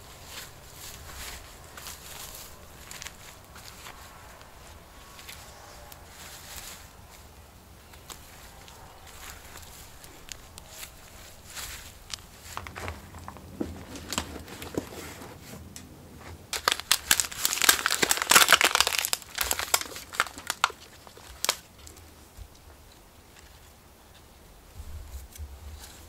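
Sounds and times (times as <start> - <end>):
hands scuffing soil: 0.0 - 16.5
plastic pot crinkling: 0.0 - 24.2.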